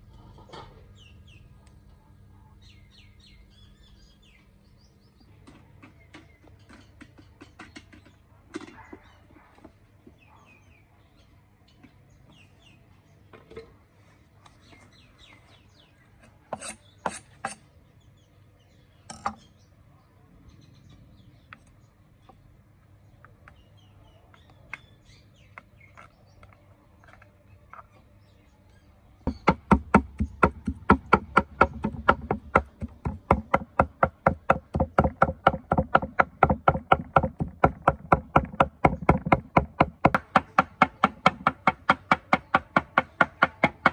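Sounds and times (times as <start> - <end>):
cleaver chopping on wooden block: 29.3 - 43.9.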